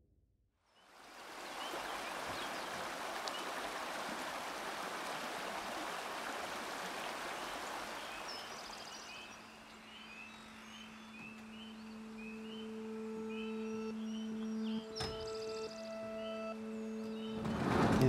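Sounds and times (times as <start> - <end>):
birds chirping: 0.8 - 4.3, 5.2 - 18.0
creek flowing over stones: 0.9 - 9.8.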